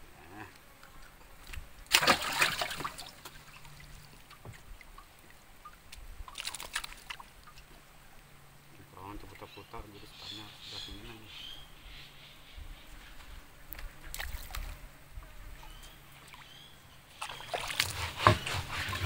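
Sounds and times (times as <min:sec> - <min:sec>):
river water splashing and sloshing: 0:01.4 - 0:09.5, 0:13.7 - 0:14.8, 0:15.6 - 0:19.0.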